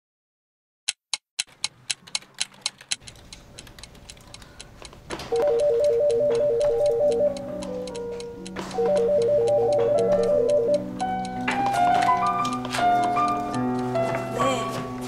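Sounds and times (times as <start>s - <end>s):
clock ticking rapidly: 0.9s - 14.0s
telephone ringing electronic trill: 5.4s - 7.4s, 8.8s - 10.9s
soft background music: 5.4s - 15.0s.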